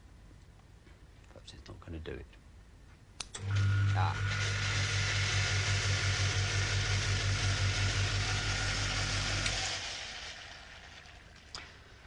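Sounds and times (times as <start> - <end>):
refrigerator compressor humming: 3.4 - 11.2.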